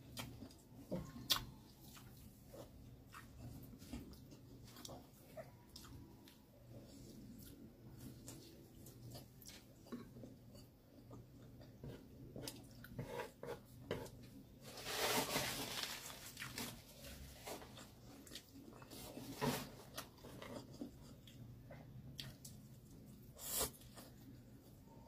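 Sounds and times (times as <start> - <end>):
chewing and mouth sounds: 0.0 - 11.8.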